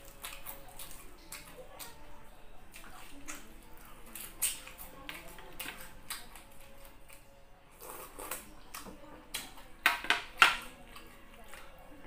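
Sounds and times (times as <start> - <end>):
person sipping sauce: 7.8 - 8.4
wet mouth noises: 7.8 - 8.5.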